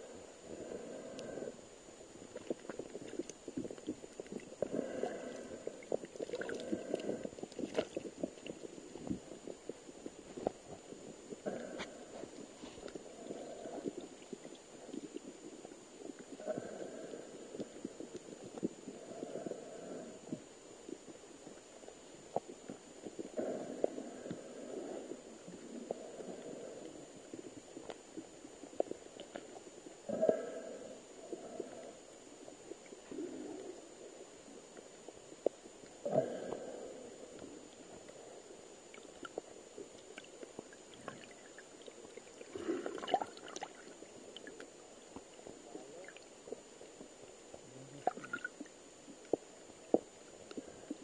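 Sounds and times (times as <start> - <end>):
underwater crackle of clicks: 0.6 - 1.4, 2.2 - 30.4, 31.2 - 51.0
bubbling water: 2.3 - 9.6, 40.2 - 44.6, 47.9 - 48.7.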